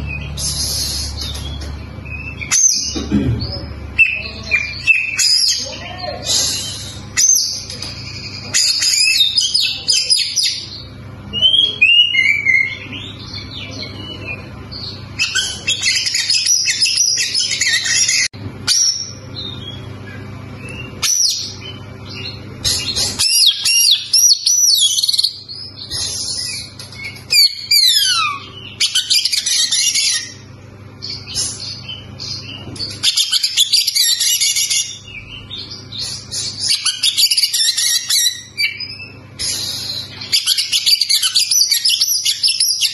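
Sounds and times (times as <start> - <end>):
bird singing whistles and trills: 0.0 - 3.0, 31.0 - 42.9.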